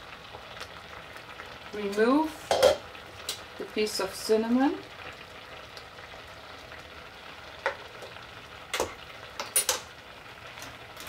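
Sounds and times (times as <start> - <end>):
pot boiling and bubbling: 0.0 - 11.0
cutlery clicking: 8.8 - 9.8.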